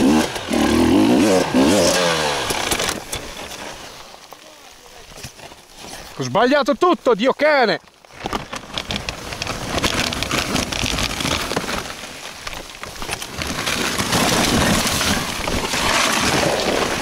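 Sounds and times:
gravel crunching and scraping: 0.0 - 17.0.

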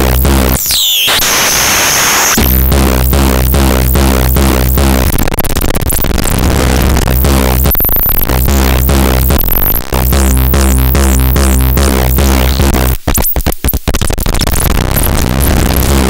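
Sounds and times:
distorted synthesizer drone: 0.0 - 16.0
squealing feedback tones: 0.4 - 2.8.

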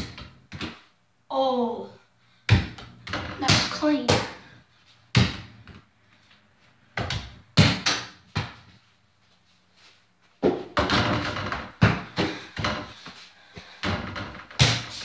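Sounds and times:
ball bouncing on hard floor: 0.0 - 0.9, 2.5 - 4.4, 5.1 - 5.9, 7.0 - 8.8, 10.4 - 15.0
ball knocking on backboard and door: 7.0 - 8.7, 10.4 - 12.9, 13.8 - 15.0.

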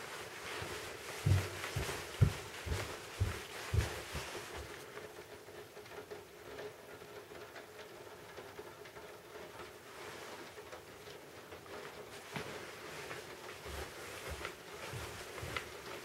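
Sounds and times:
light rustling: 0.0 - 4.9.

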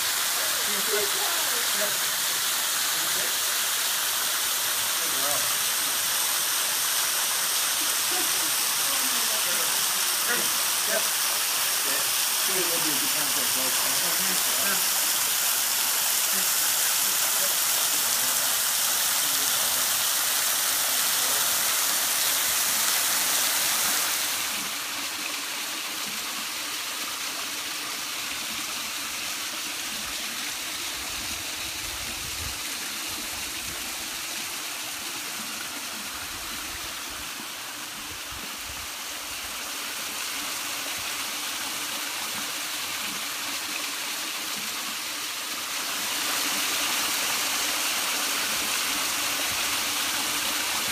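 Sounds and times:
waterfall splashing onto rock: 0.0 - 25.3.

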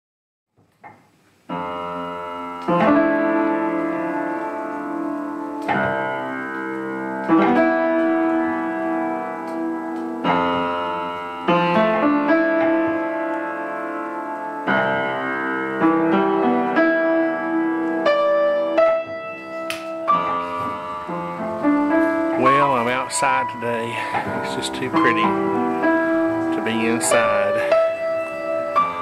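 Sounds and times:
piano playing slow chords: 1.4 - 29.0.

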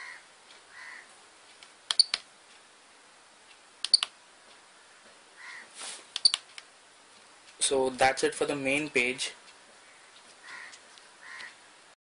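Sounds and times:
sharp button clicks: 3.8 - 4.1, 6.2 - 6.4.

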